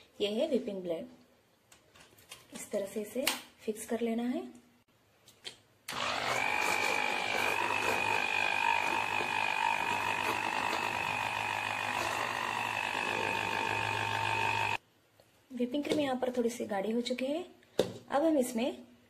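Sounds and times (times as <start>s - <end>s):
hand blender motor whine: 5.9s - 14.8s.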